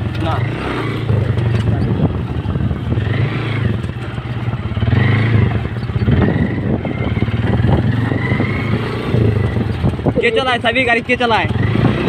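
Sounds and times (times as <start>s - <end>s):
motorcycle engine running: 0.0s - 12.0s
high wavering tones: 10.1s - 10.7s.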